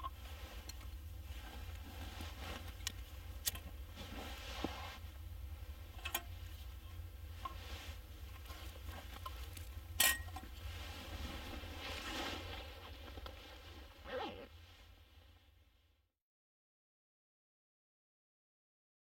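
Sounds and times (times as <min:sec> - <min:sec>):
soft rustles: 0:00.0 - 0:15.6
steady low rumble: 0:00.1 - 0:14.0.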